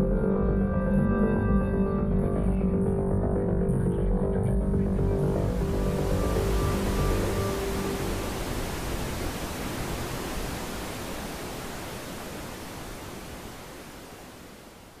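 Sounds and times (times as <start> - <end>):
steady rushing noise: 3.4 - 15.0.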